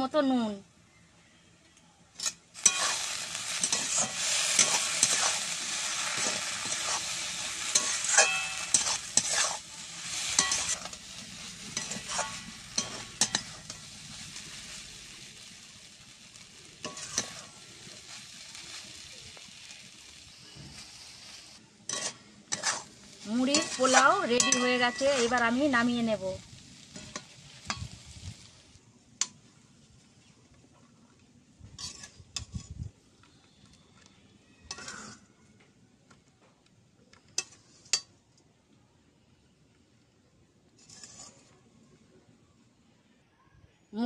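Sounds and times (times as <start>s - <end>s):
puffed rice sizzling in pan: 2.1s - 35.3s, 37.2s - 38.2s, 40.6s - 41.8s
metal spatula scraping pan: 2.2s - 13.9s, 16.8s - 18.1s, 21.9s - 25.8s, 31.8s - 32.7s, 34.7s - 35.3s, 40.8s - 41.6s.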